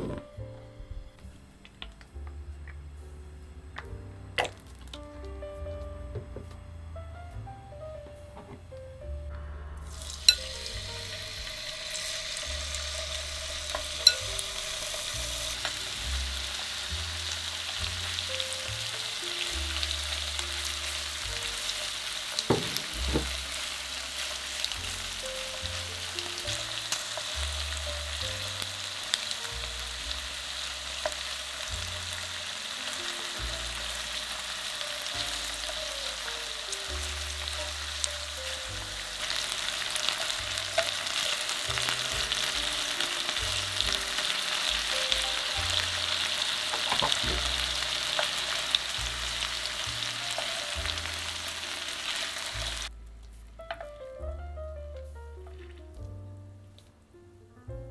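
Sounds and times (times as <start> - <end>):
chicken sizzling in hot oil: 9.8 - 52.9.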